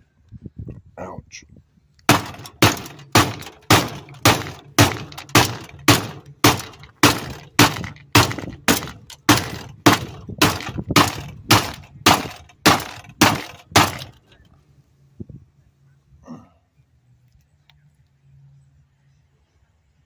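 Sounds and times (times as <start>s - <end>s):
hammer knocking on motor housing: 2.1s - 14.2s.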